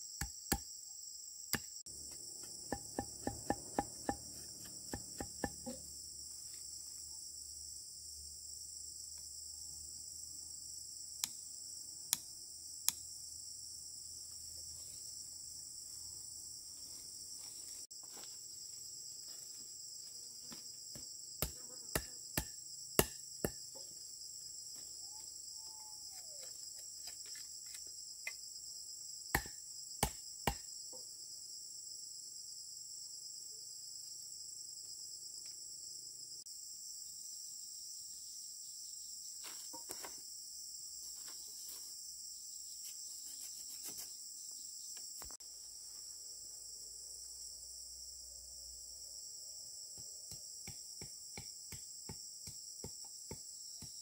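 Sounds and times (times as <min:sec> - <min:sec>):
insect chorus: 0:00.0 - 0:54.0
sharp knocks: 0:02.4 - 0:05.8.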